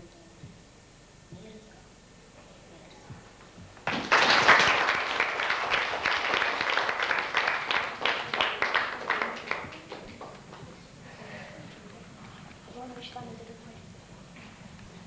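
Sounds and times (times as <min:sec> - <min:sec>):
audience applause: 0:03.8 - 0:10.7.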